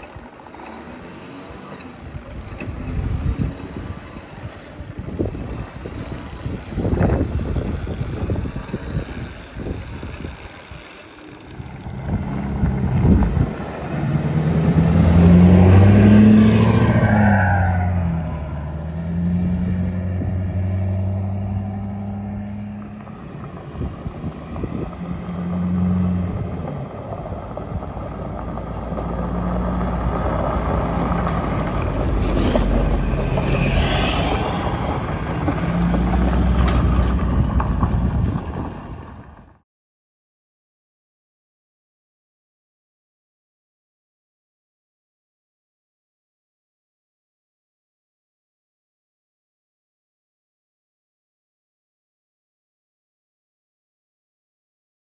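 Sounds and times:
truck engine under load: 0:00.0 - 0:39.6.

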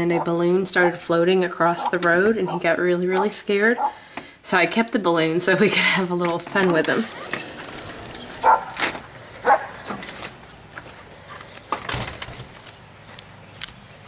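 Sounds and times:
dog barking: 0:03.2 - 0:04.0, 0:08.4 - 0:08.8, 0:09.4 - 0:09.8.

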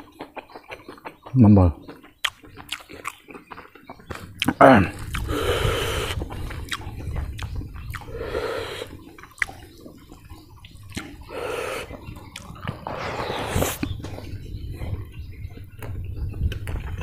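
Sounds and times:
wet chewing and lip-smacking: 0:00.0 - 0:12.9, 0:13.7 - 0:17.0
soft rushing swell: 0:12.7 - 0:14.0.

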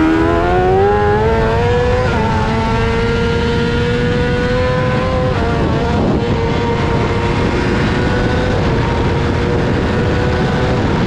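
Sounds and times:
motorcycle engine accelerating hard: 0:00.0 - 0:11.0.

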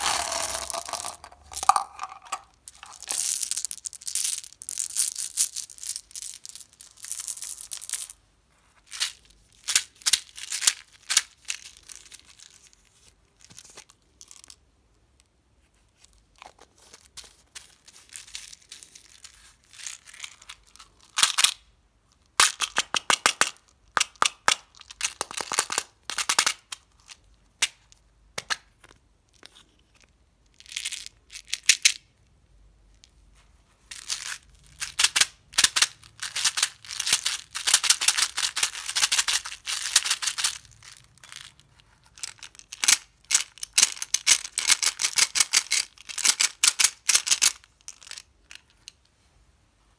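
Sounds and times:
candies and containers clicking: 0:00.0 - 0:06.1.

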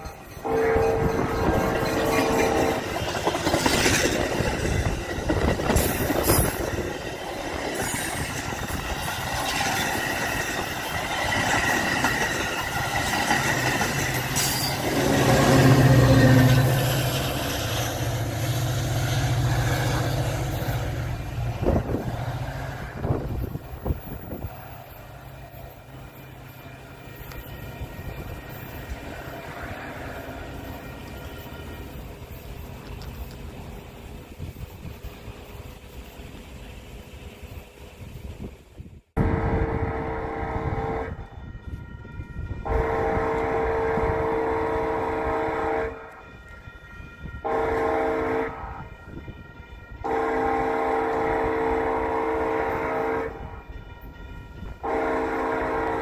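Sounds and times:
steel wheels clattering over rails: 0:00.0 - 0:18.2
diesel locomotive engine drone: 0:00.0 - 0:56.0
train horn: 0:00.2 - 0:03.2, 0:13.8 - 0:17.0, 0:26.9 - 0:28.9, 0:39.2 - 0:56.0.

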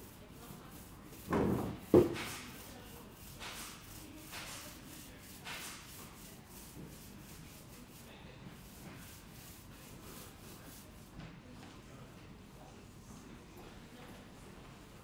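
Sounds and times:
paint roller rubbing on wall: 0:00.1 - 0:11.1.

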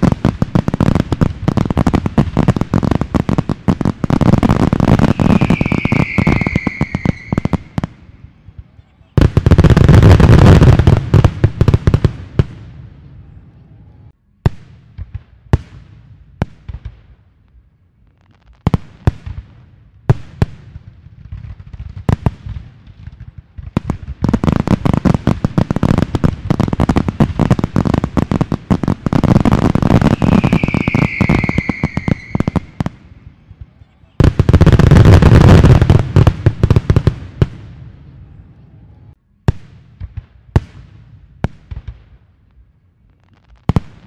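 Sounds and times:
high whistling firework: 0:00.0 - 0:11.3, 0:23.7 - 0:37.6
fireworks bangs: 0:00.0 - 0:13.6, 0:18.2 - 0:42.3, 0:43.1 - 0:44.0.

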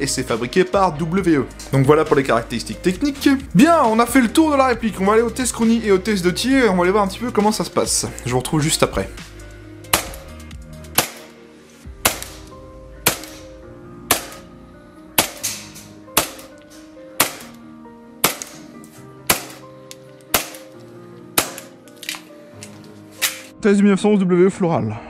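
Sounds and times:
background music: 0:00.0 - 0:25.0
airsoft pistol shots: 0:09.9 - 0:10.3, 0:11.0 - 0:11.3, 0:12.0 - 0:13.5, 0:14.1 - 0:14.5, 0:15.2 - 0:16.5, 0:17.2 - 0:17.6, 0:18.2 - 0:18.7, 0:19.3 - 0:19.6, 0:20.3 - 0:20.7, 0:21.4 - 0:21.7.

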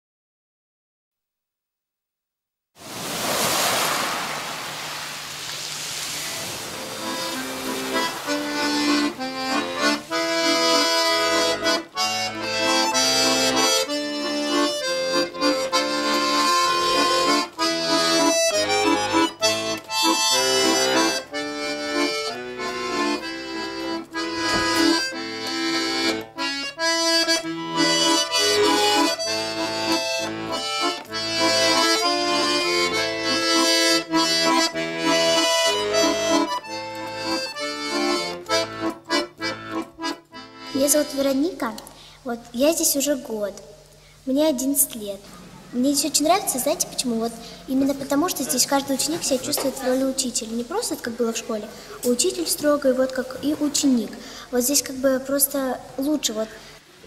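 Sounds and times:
button accordion playing: 0:06.4 - 0:41.6.

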